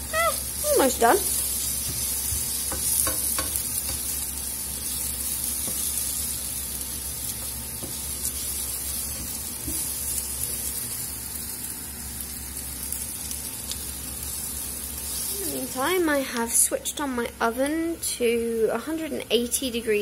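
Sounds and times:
vegetables sizzling in frying pan: 0.0s - 18.8s.

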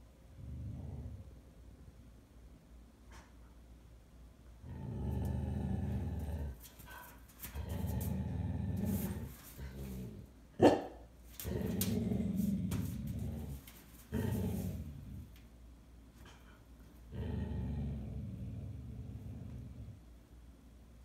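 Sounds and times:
dog growling: 0.3s - 1.4s, 4.6s - 10.8s, 11.4s - 15.4s, 16.2s - 20.1s
dog barking: 10.6s - 11.0s.

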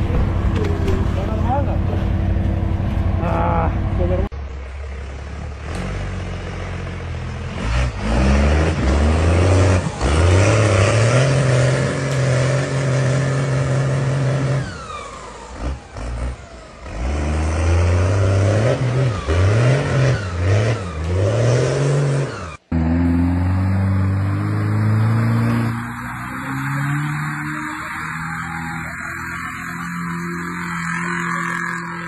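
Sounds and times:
engine revving hard: 7.5s - 14.9s, 15.5s - 32.0s.

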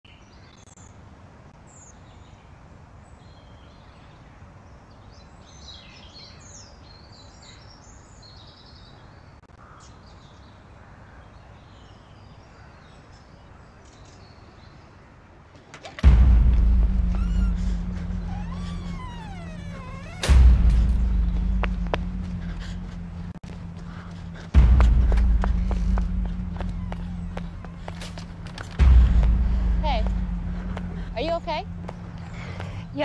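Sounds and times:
loud droning with high whine: 16.0s - 33.0s.

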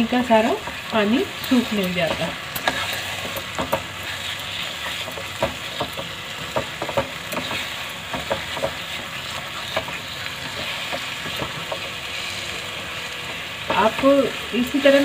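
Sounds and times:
food sizzling in a pan: 0.0s - 15.0s
spatula tapping and scraping pan: 1.4s - 12.0s.

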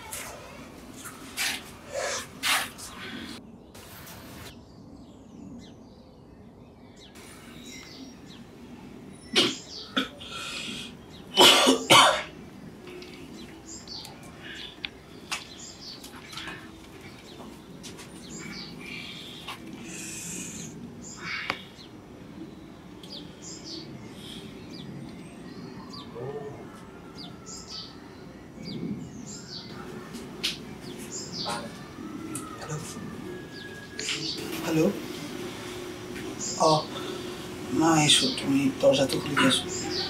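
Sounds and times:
faint birds chirping: 0.0s - 40.0s
man coughing: 11.4s - 12.3s.

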